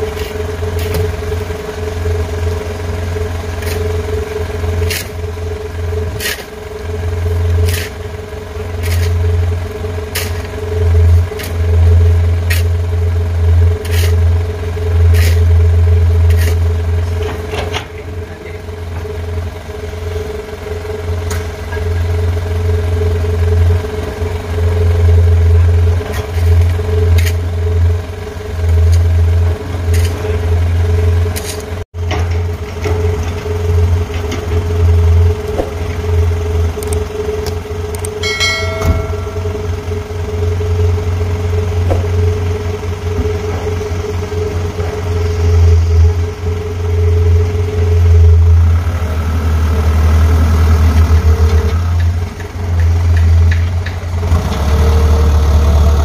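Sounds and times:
diesel engine idling: 0.0s - 56.0s
steady hum: 35.1s - 43.5s.

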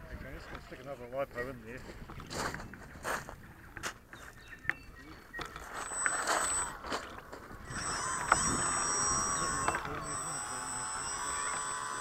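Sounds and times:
electric propeller whine: 5.5s - 12.0s.

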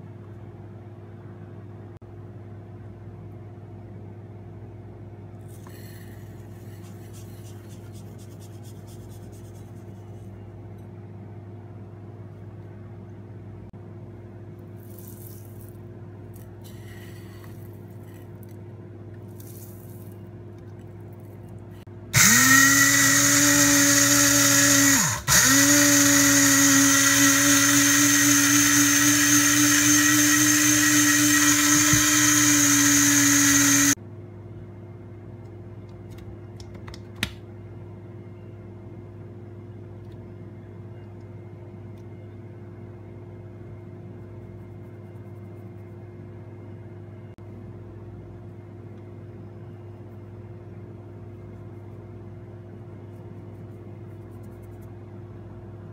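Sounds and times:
spice grinder motor whining: 22.2s - 34.0s.

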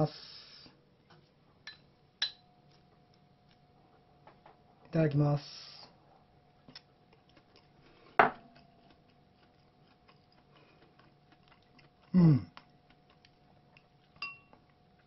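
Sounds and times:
person humming mm: 12.1s - 12.6s.

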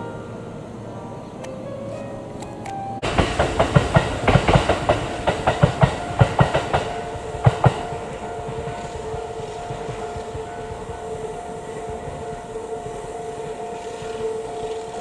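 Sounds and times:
faint music: 0.0s - 3.1s
train running hum: 0.0s - 15.0s
train wheels clacking on rail joints: 3.0s - 15.0s.

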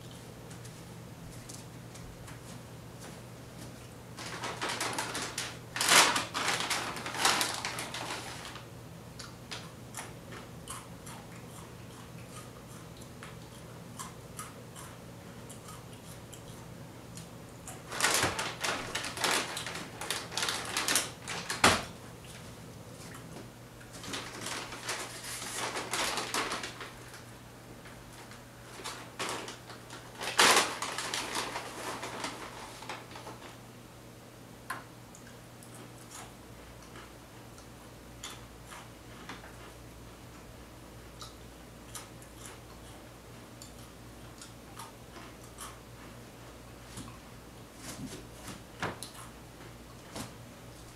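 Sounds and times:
faint steady hum: 0.0s - 50.9s
plastic bag crinkling: 4.2s - 8.7s, 17.8s - 22.0s, 23.9s - 27.3s, 28.2s - 33.6s.

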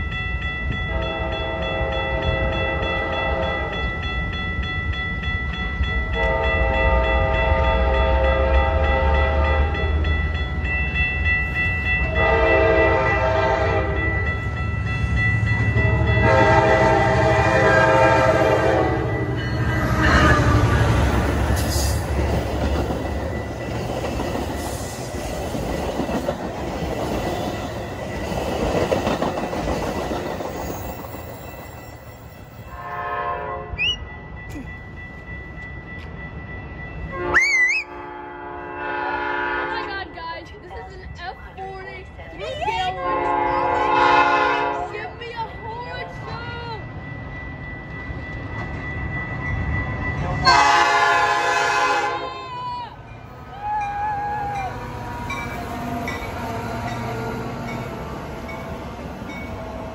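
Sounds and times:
crossing bells ringing: 0.0s - 59.9s
train cars rumbling over rails: 0.0s - 59.9s
train horn blasts: 0.9s - 3.7s, 6.1s - 9.9s, 12.1s - 14.1s, 15.8s - 22.0s, 32.7s - 33.8s, 37.1s - 40.0s, 42.9s - 45.0s, 50.3s - 52.6s.

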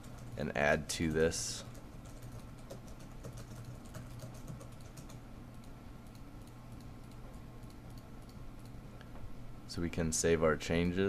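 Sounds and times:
steady low hum: 0.0s - 11.0s
computer mouse clicking: 1.7s - 9.1s.

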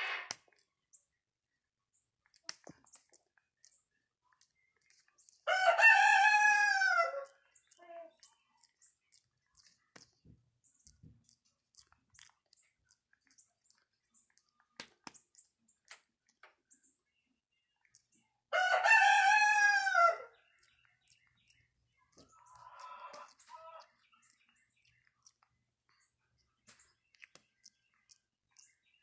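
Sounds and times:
rooster crowing: 5.5s - 7.3s, 18.5s - 20.3s
faint rasping sound: 18.8s - 28.7s.

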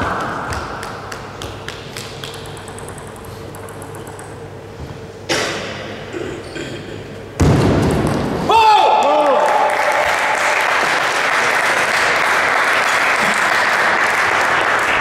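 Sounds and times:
table tennis ball clicking: 0.0s - 4.5s
crowd applause: 9.2s - 15.0s.

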